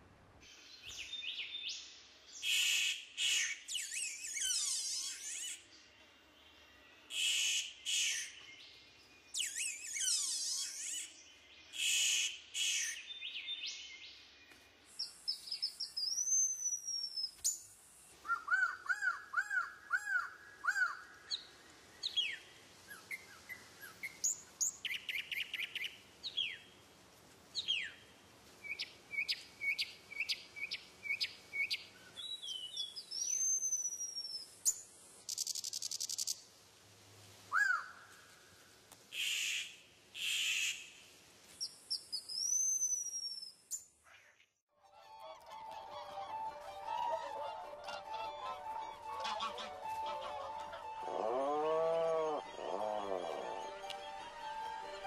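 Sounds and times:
birds singing and calling: 0:03.3 - 0:05.6, 0:09.3 - 0:12.0, 0:47.8 - 0:54.0.

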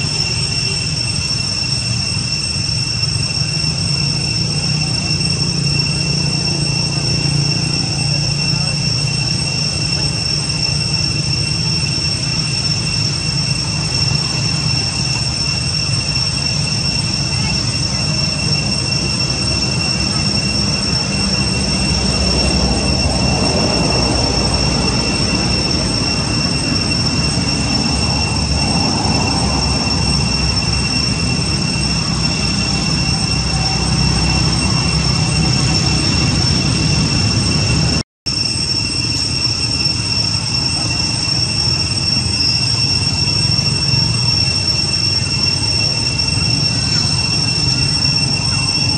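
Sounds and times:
forest insects droning: 0:00.0 - 0:48.9.

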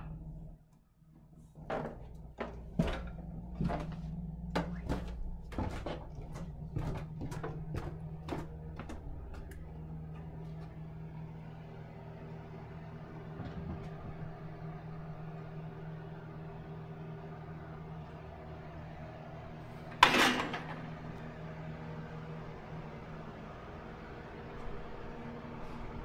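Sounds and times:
low mechanical hum: 0:00.0 - 0:26.0
footsteps: 0:01.7 - 0:10.8.

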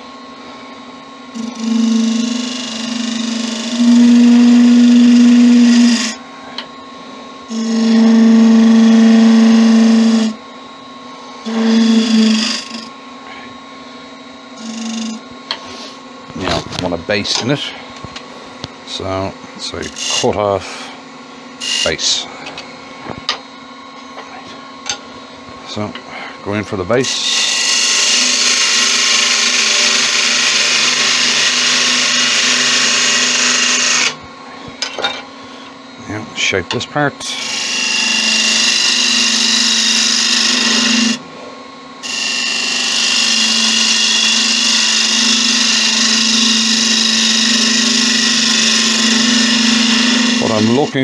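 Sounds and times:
wood lathe cutting with buzzing tone: 0:01.2 - 0:06.6, 0:07.2 - 0:10.4, 0:11.2 - 0:13.0, 0:14.6 - 0:17.7, 0:18.9 - 0:20.9, 0:21.6 - 0:22.3, 0:27.0 - 0:34.2, 0:37.2 - 0:41.3, 0:42.0 - 0:51.0
wood lathe running: 0:01.3 - 0:06.2, 0:07.5 - 0:10.4, 0:11.4 - 0:12.9, 0:14.6 - 0:16.5, 0:19.8 - 0:20.8, 0:21.6 - 0:22.2, 0:27.0 - 0:34.2, 0:37.2 - 0:41.2, 0:42.0 - 0:51.0.

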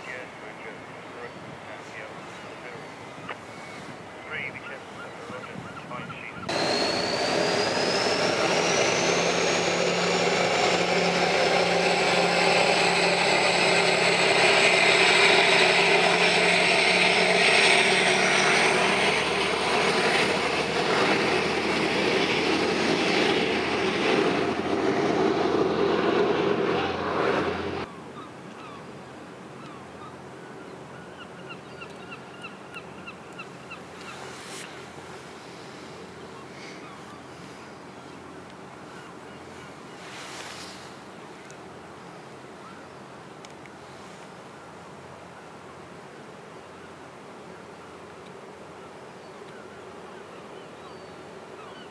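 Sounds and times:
loud engine with high whine: 0:06.4 - 0:27.9.

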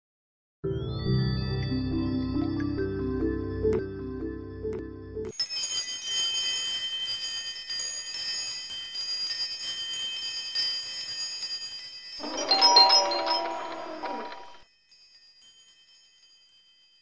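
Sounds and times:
twinkling bell-like chimes: 0:05.3 - 0:17.0
lower chime notes: 0:12.2 - 0:14.6.

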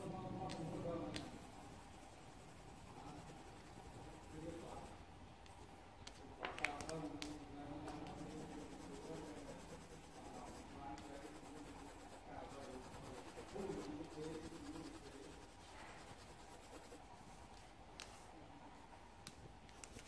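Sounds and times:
pencil scratching on paper: 0:01.2 - 0:05.0, 0:08.0 - 0:17.0, 0:19.7 - 0:20.0.

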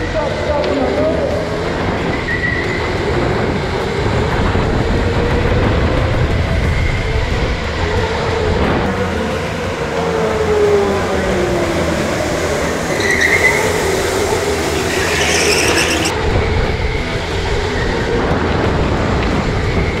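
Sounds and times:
rumble of kart tyres on concrete: 0:00.0 - 0:20.0
electric motors whining: 0:11.2 - 0:16.1
tyre squeal: 0:12.9 - 0:16.1.

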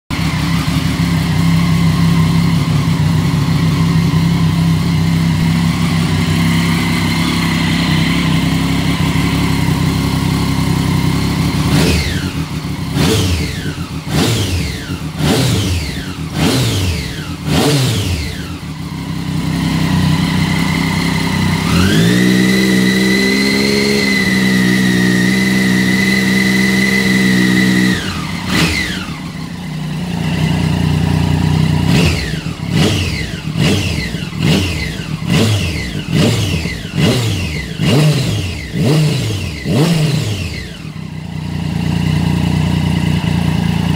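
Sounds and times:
motorcycle engine revving: 0:00.0 - 0:43.9.

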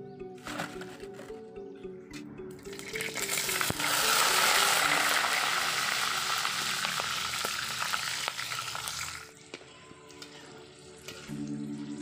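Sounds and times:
oil sizzling in a wok: 0:02.8 - 0:09.4.

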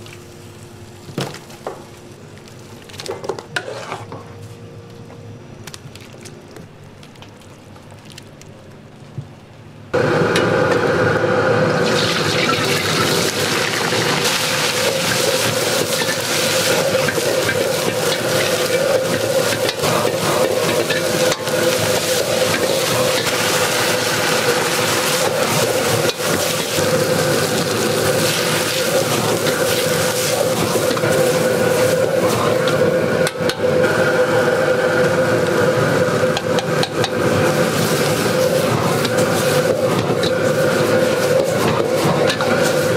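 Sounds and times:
gas burner roar: 0:09.8 - 0:42.9
vegetables sizzling in wok: 0:10.0 - 0:42.9.

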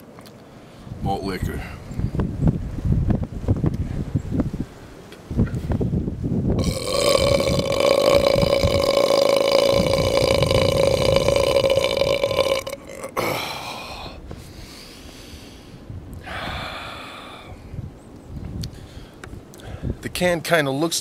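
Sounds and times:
man belching: 0:06.6 - 0:14.2.

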